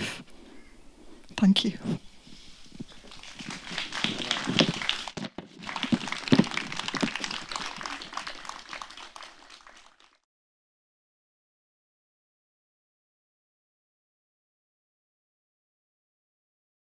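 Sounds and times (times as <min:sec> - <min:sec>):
audience applauding: 0:02.9 - 0:10.2.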